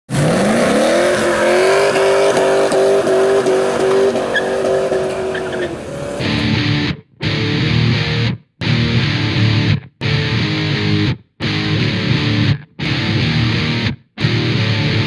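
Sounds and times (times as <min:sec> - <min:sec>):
tyres squealing: 0:00.1 - 0:06.3
car engine revving: 0:00.1 - 0:06.7.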